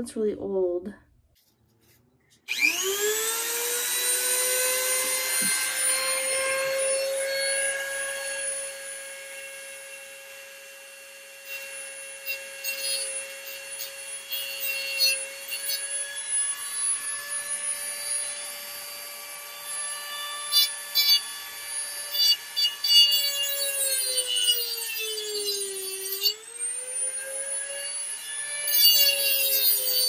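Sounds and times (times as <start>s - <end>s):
rotary tool grinding metal: 2.4s - 30.0s.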